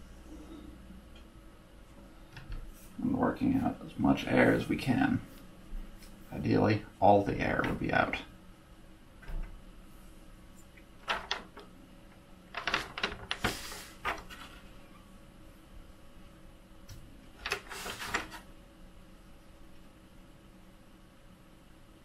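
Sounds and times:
hands rubbing magnetic sheet: 0:17.4 - 0:18.4.

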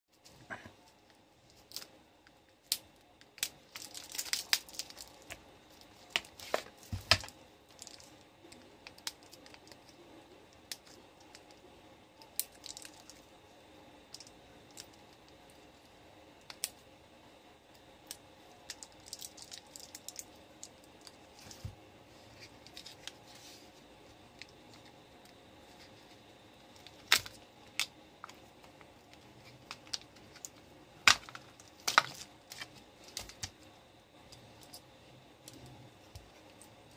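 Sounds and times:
plastic wrapping crinkling and tearing: 0:02.6 - 0:10.1, 0:12.2 - 0:13.2, 0:18.7 - 0:21.6, 0:26.7 - 0:33.6
battery cells clicking and knocking: 0:26.7 - 0:33.7.

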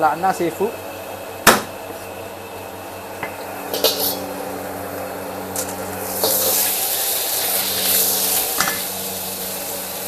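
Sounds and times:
steady low hum: 0:00.0 - 0:10.0
sizzling in hot wok: 0:01.1 - 0:10.0
utensils clanking against wok: 0:03.2 - 0:04.3, 0:05.5 - 0:08.9.

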